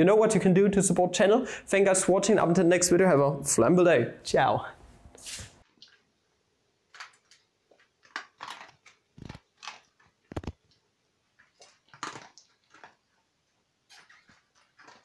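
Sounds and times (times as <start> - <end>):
cat chewing with soft crunches: 7.0 - 13.3.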